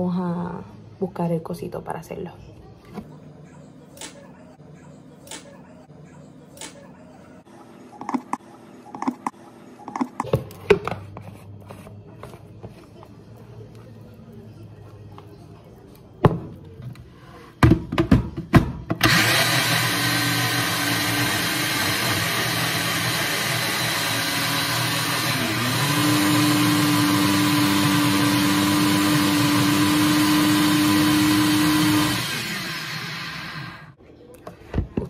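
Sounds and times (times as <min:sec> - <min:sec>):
blender motor running: 0:19.0 - 0:34.0.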